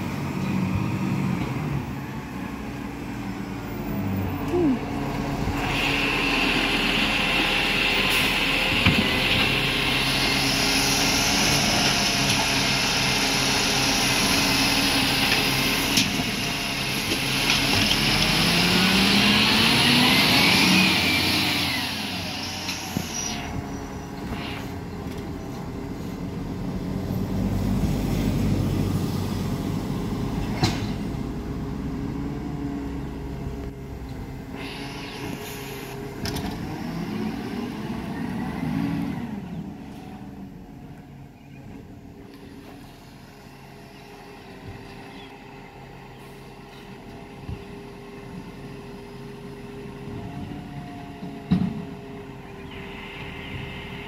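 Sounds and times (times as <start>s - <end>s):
truck engine revving: 0.0s - 40.6s
diesel engine pulling away: 0.0s - 54.0s
hydraulic arm whining: 4.4s - 26.4s.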